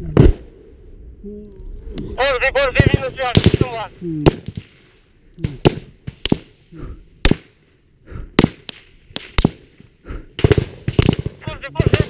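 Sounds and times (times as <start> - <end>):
gunshots cracking: 2.6 - 6.6, 7.2 - 7.6, 8.4 - 12.0.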